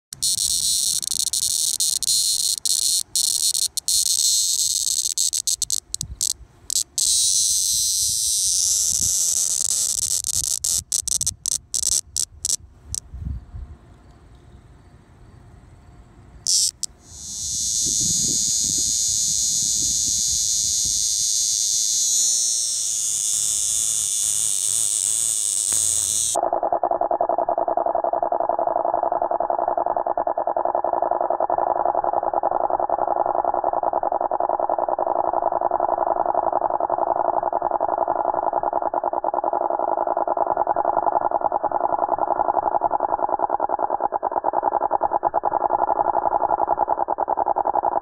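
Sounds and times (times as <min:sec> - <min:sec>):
cicada distress buzz: 0:00.1 - 0:13.0, 0:16.4 - 0:29.1.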